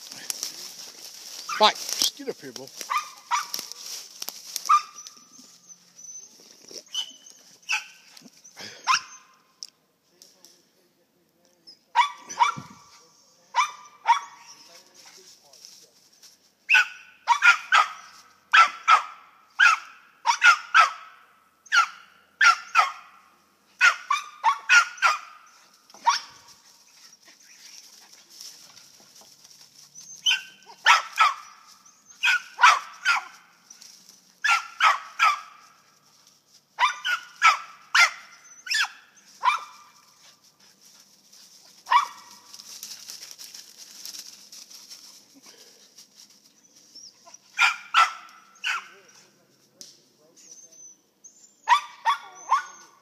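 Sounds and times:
dogs barking: 2.8 - 3.8, 4.6 - 5.2, 7.0 - 9.3, 12.0 - 12.8, 13.5 - 14.6, 16.7 - 23.2, 23.8 - 26.5, 30.2 - 33.4, 34.4 - 35.6, 36.8 - 40.0, 41.8 - 42.5, 47.3 - 49.0, 51.7 - 53.0.

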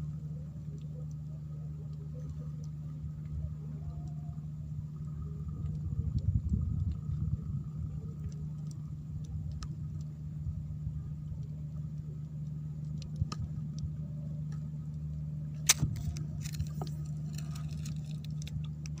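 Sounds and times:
faint ticks: 0.0 - 19.0
low hum: 0.0 - 19.0.

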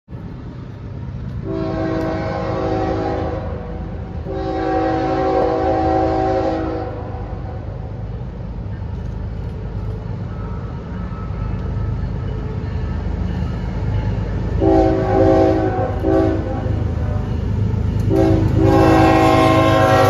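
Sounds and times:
train rumbling: 0.1 - 20.0
locomotive air horn blasts: 1.4 - 7.5, 14.6 - 17.2, 18.0 - 20.0.

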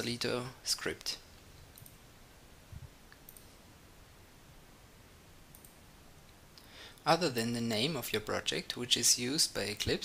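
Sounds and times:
computer mouse clicks: 1.7 - 2.0, 3.1 - 3.6, 5.5 - 5.8.

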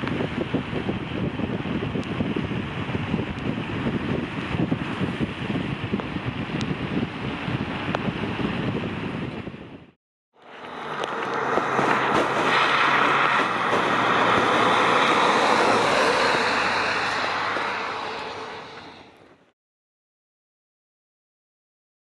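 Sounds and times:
tyres hissing on wet road: 10.4 - 19.4
car engine and exhaust rumble: 10.4 - 19.5.

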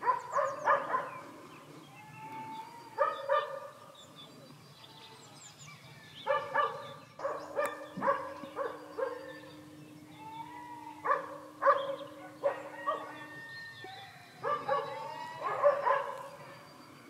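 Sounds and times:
dog barking: 0.0 - 1.2, 3.0 - 3.8, 6.2 - 9.4, 11.0 - 13.3, 14.4 - 16.4
birds chirping faintly: 0.0 - 17.0.

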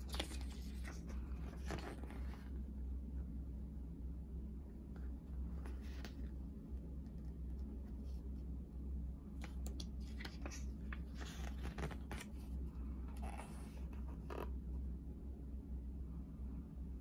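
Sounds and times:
page turning: 0.0 - 2.5, 5.6 - 6.3, 9.4 - 12.6
book pages rustling: 0.0 - 2.6, 5.1 - 8.4, 9.4 - 14.6
steady low hum: 0.0 - 17.0.

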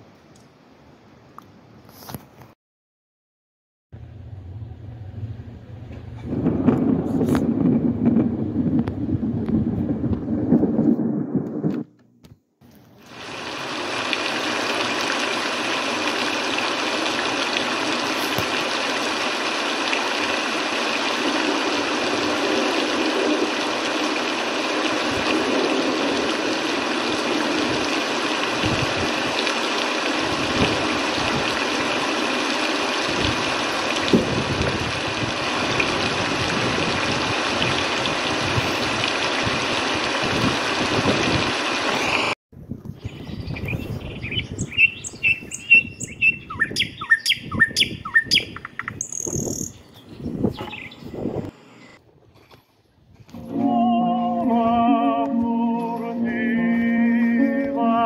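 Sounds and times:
sea water washing against rocks: 13.0 - 42.4.

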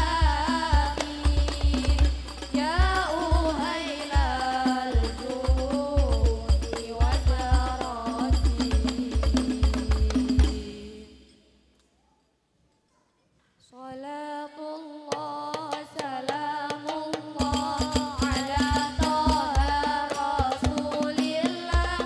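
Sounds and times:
child singing into a microphone: 0.0 - 8.3, 13.7 - 22.0
frame drums beating: 0.0 - 11.0, 16.8 - 22.0.

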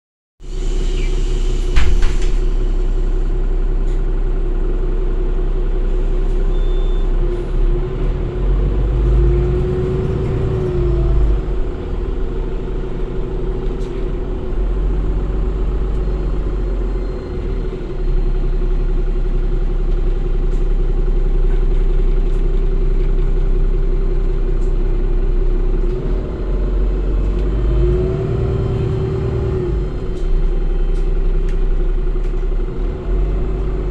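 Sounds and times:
bus engine rumble with gearbox whine: 0.5 - 33.9
sharp knock: 1.7 - 2.5.

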